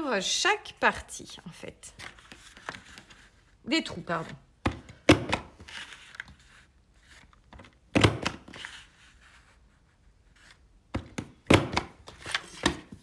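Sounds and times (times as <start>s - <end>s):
paper handling: 1.9s - 3.5s, 5.6s - 7.8s.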